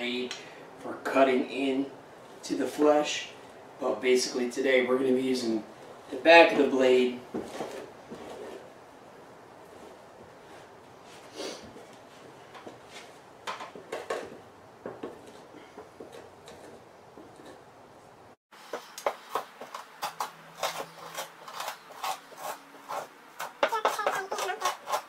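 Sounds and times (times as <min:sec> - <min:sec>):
knife scraping pelt: 0:18.7 - 0:25.0.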